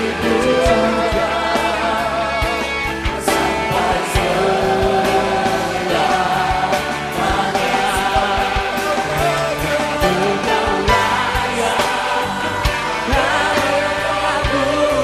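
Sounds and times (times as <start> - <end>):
band with drums playing: 0.0 - 15.0
people singing long notes: 0.0 - 15.0.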